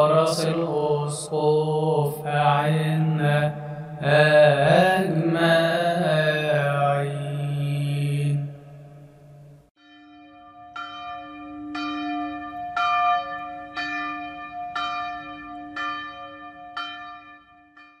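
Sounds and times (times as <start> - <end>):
bell tolling: 9.8 - 18.0.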